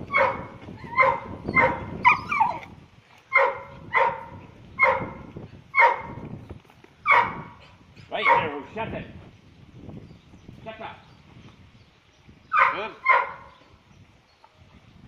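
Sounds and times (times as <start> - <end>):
dog yelping whines: 0.1 - 4.2.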